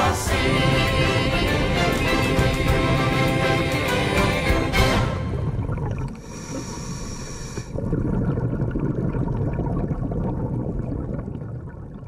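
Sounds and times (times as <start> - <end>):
music track: 0.0 - 5.8.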